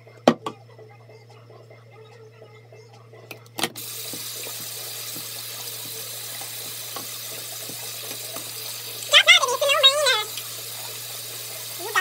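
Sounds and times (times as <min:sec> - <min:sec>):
water running from a tap: 0:03.8 - 0:12.0.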